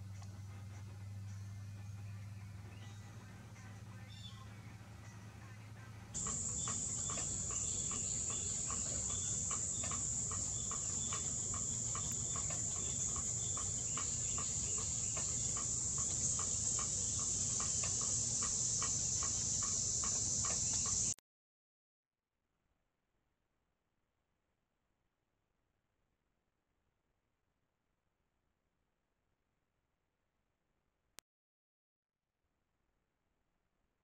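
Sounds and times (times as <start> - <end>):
high-pitched insect chorus: 6.2 - 21.2
regular ticking: 6.2 - 21.2.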